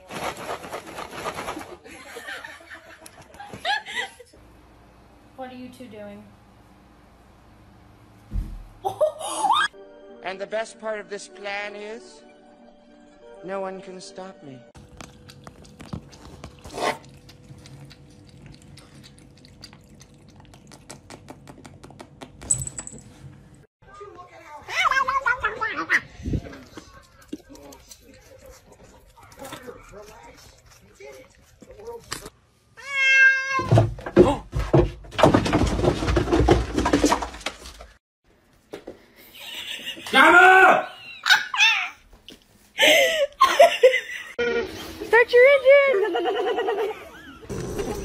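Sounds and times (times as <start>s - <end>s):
knocks and thumps: 8.3s - 8.8s, 33.6s - 38.0s
cat lapping water: 14.8s - 21.6s
cat meowing: 32.8s - 33.7s.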